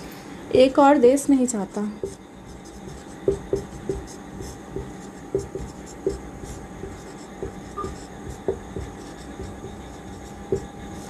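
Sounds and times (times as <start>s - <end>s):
faint steady hum: 0.0s - 11.0s
marker writing on whiteboard: 2.0s - 11.0s.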